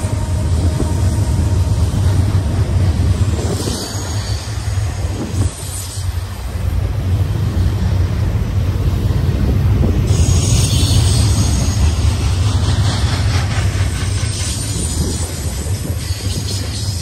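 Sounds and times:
steel wheels rumbling on rail: 0:00.0 - 0:17.0
high hiss: 0:01.0 - 0:08.0.

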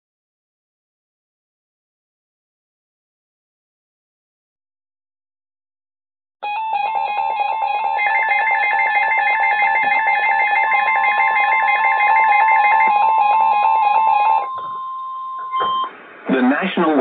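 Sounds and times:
electronic alarm beeping: 0:06.4 - 0:15.9
steady high alarm tone: 0:06.4 - 0:15.9.

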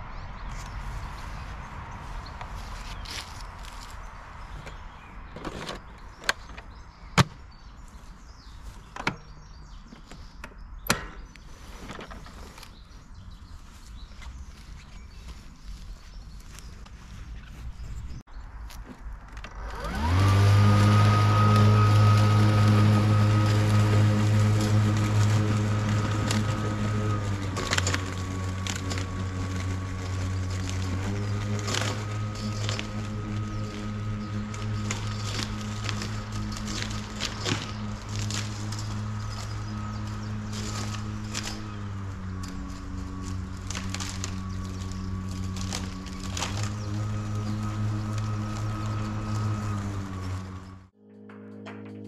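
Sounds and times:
electric lawn mower running: 0:19.4 - 0:51.0.

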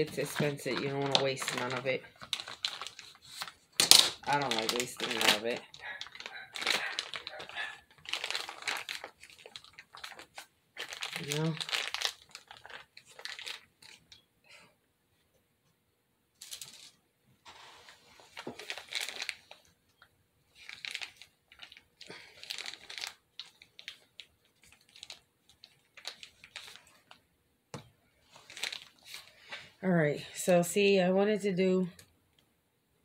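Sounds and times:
plastic bag crinkling: 0:00.0 - 0:14.2, 0:16.4 - 0:27.2, 0:28.2 - 0:29.6.

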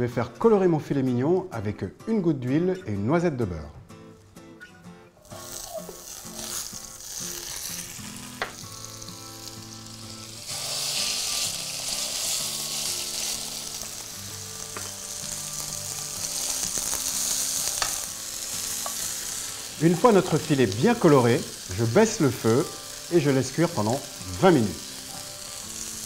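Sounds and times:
butter sizzling faintly: 0:05.2 - 0:26.0
meat sizzling in a frying pan: 0:05.2 - 0:26.0.

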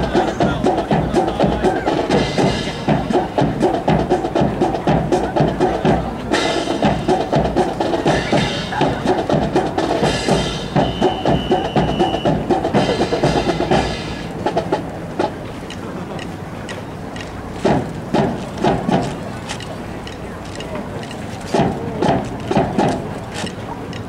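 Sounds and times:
percussive music with quick drum beat: 0:00.0 - 0:15.5, 0:17.5 - 0:20.2, 0:21.5 - 0:23.6
steady high tone: 0:06.3 - 0:14.6.

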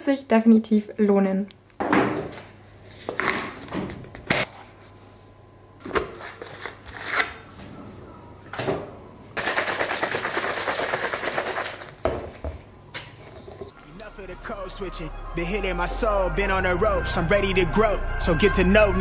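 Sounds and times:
shaker bottle rattling: 0:09.4 - 0:12.0.

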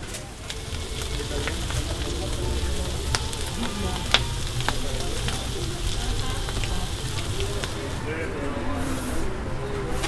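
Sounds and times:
food sizzling on a griddle: 0:00.4 - 0:08.2.

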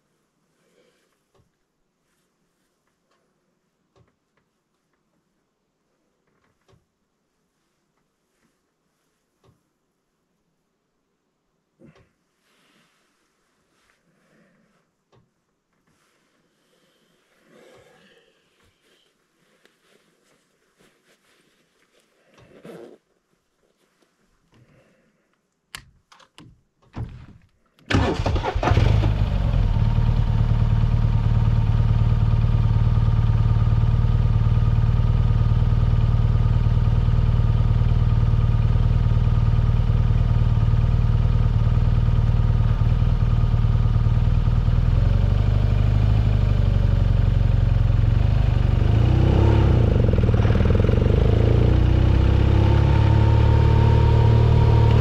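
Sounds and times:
motorcycle engine idling: 0:29.3 - 0:48.8.

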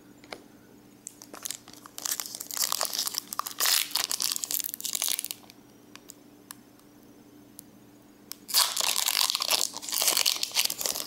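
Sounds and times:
plastic wrapper crinkling: 0:01.0 - 0:06.1, 0:08.4 - 0:11.0.

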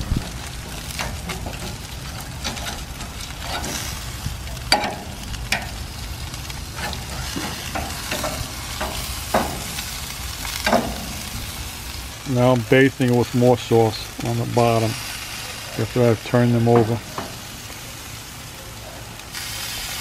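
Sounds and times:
utensils scraping grill grates: 0:00.0 - 0:12.4
chicken sizzling on a grill: 0:00.0 - 0:20.0
sharp metallic knocks: 0:10.6 - 0:11.2.

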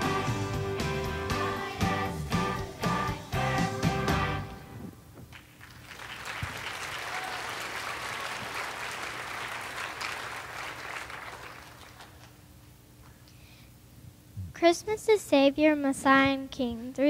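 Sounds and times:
audience applauding: 0:05.3 - 0:12.4.

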